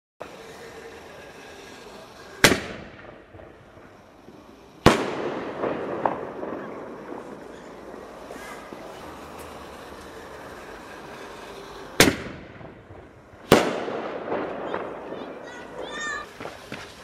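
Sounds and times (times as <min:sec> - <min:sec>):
firework launch bang: 0:01.6 - 0:09.9, 0:12.0 - 0:17.0
firework shell burst: 0:02.3 - 0:08.8, 0:12.0 - 0:17.0.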